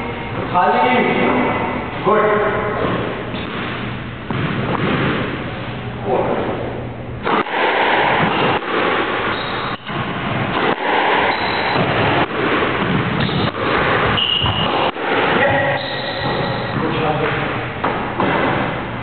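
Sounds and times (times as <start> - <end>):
squash ball hit by racquets: 2.6 - 19.0
ball slapping off walls: 2.8 - 5.5, 7.2 - 18.9
loud rushing noise: 7.2 - 19.0
shoes squeaking on wooden floor: 15.7 - 16.8.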